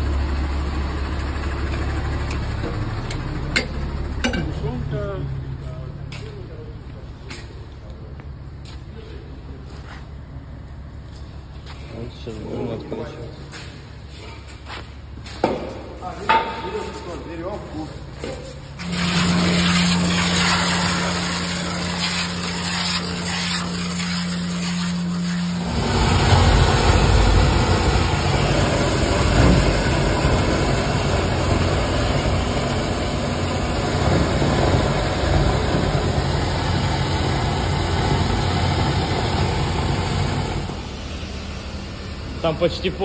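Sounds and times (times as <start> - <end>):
suction hose sucking sludge: 18.8 - 40.8
vacuum pump humming: 18.8 - 42.4.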